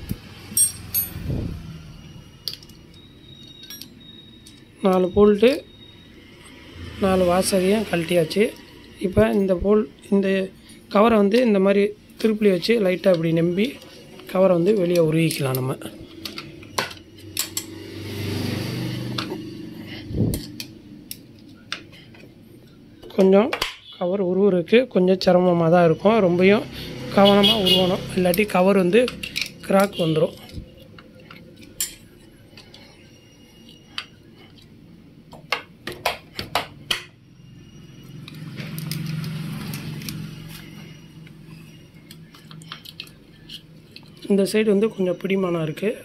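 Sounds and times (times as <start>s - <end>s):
sharp metallic clinks and taps: 0.5s - 1.3s, 2.4s - 4.7s, 16.2s - 17.8s
low engine-like hum: 15.8s - 23.0s, 37.2s - 44.2s.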